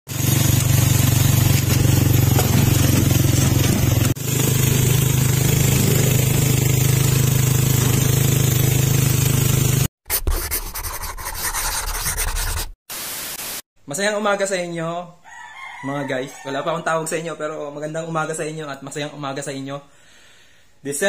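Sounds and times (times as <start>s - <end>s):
engine running steadily: 0.1s - 9.9s.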